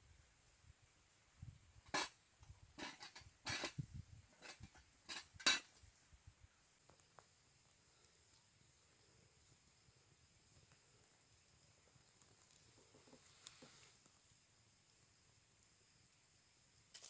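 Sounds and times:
metal mug and pot clinking: 4.4 - 5.8.

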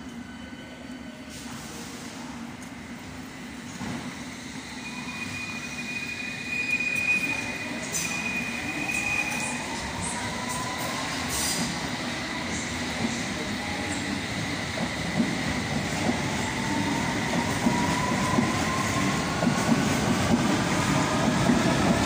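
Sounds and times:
train rolling rumble: 9.4 - 22.0.

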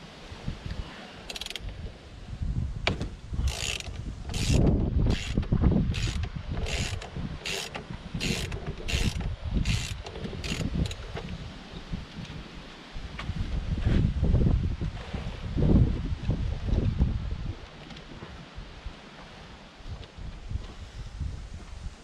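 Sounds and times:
ratchet wrench clicking: 1.3 - 1.6, 3.4 - 11.0.

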